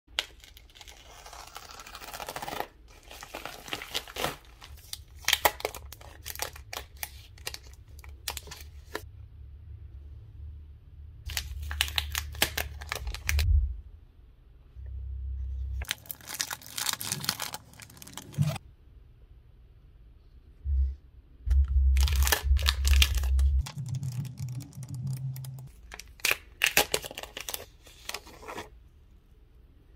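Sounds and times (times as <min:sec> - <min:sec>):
plastic packaging crinkling and tearing: 0:00.1 - 0:09.0, 0:11.3 - 0:13.4, 0:15.8 - 0:18.6, 0:22.0 - 0:28.7.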